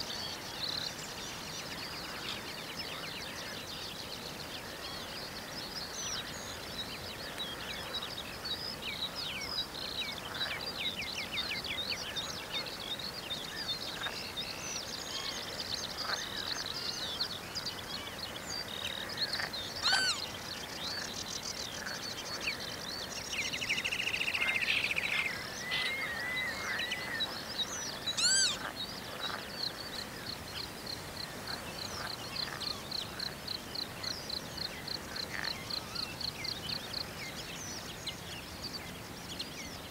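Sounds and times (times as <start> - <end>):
birds chirping and trilling: 0.0 - 39.9
loud sharp bird call: 19.8 - 20.2, 28.1 - 28.6.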